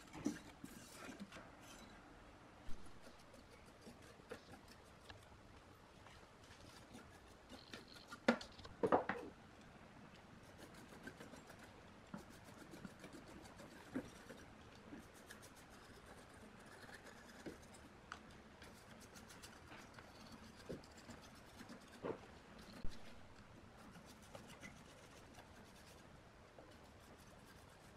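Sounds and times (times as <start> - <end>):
paintbrush scrubbing circuit boards: 0.0 - 1.9, 2.7 - 8.6, 10.4 - 27.9.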